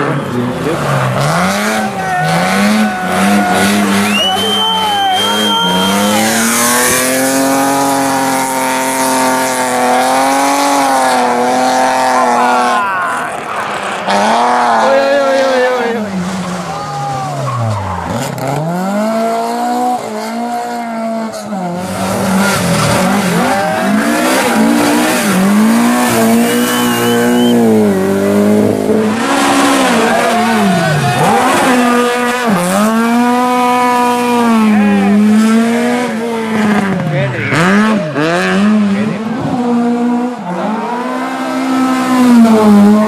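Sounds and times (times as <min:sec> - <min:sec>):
rally car engine revving: 0:00.0 - 0:43.0
tyres squealing: 0:22.5 - 0:27.7.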